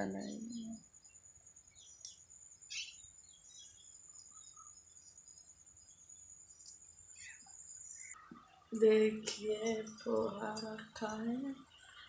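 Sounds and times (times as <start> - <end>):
high-pitched insect trill: 0.2 - 12.0
short bird chirps: 1.8 - 5.1.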